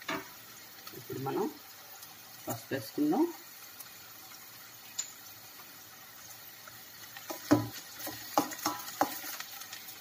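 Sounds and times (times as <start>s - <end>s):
onions sizzling in a pan: 0.0s - 10.0s
spatula knocking against pan: 7.3s - 9.2s.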